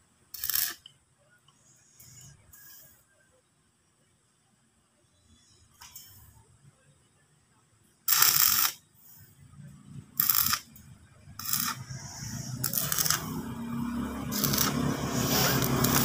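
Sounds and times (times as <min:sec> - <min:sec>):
arc welding crackling and hissing: 0:00.3 - 0:00.9, 0:08.1 - 0:08.8, 0:10.2 - 0:10.8, 0:11.4 - 0:16.0
low hum: 0:09.2 - 0:16.0.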